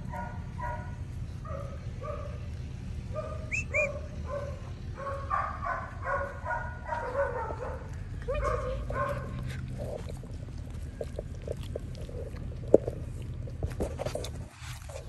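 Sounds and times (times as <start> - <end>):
dogs barking: 0.0 - 10.2.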